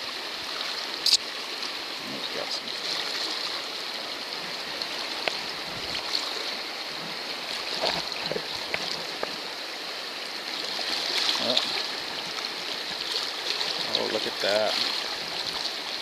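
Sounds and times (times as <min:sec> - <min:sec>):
faint ticks and splashes: 0:00.0 - 0:16.0
rushing river water: 0:00.0 - 0:16.0.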